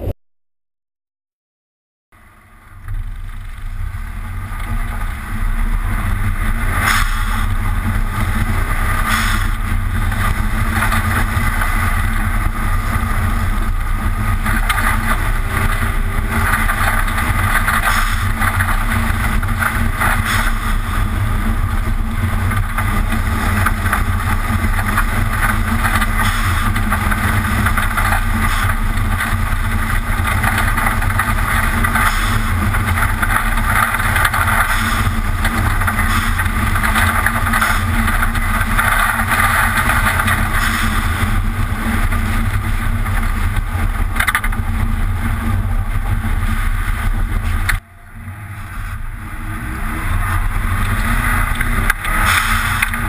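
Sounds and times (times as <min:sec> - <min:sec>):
car engine running: 0:02.2 - 0:53.0
tyre noise: 0:48.6 - 0:53.0.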